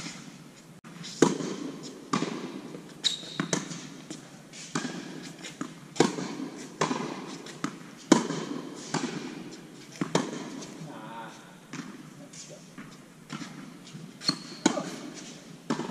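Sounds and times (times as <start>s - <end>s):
tennis balls struck and bouncing: 1.0s - 12.1s, 12.7s - 15.9s
shoe squeak: 3.0s - 3.5s, 14.2s - 14.8s.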